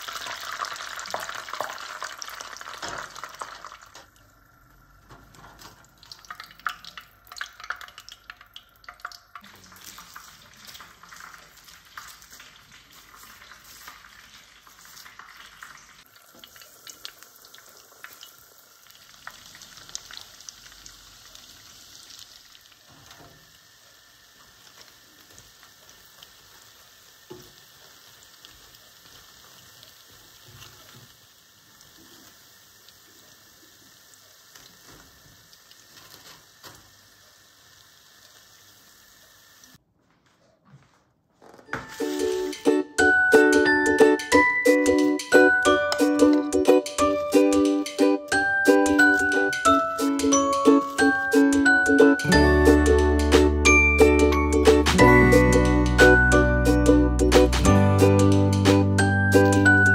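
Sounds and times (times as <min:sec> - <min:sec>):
dough deep-frying in oil: 0:00.0 - 0:39.8.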